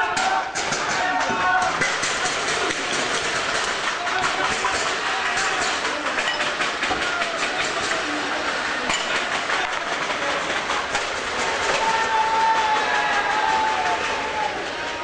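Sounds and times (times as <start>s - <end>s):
long held shout: 0.0s - 1.8s, 11.6s - 15.0s
rush of crowd noise: 0.0s - 15.0s
sharp knocks and clatters: 0.0s - 15.0s.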